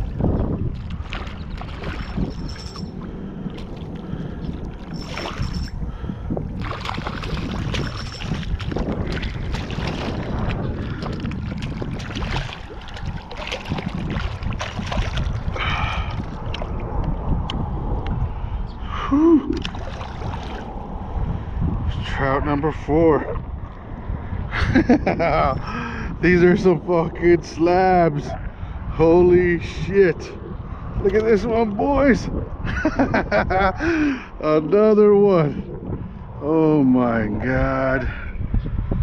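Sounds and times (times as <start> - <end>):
wind noise on microphone: 0.0 - 39.0
fish splashing in water: 6.6 - 16.8, 19.6 - 20.9.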